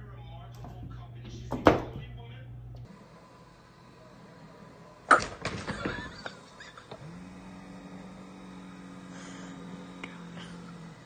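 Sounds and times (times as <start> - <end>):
small electric motor humming: 2.8 - 11.0.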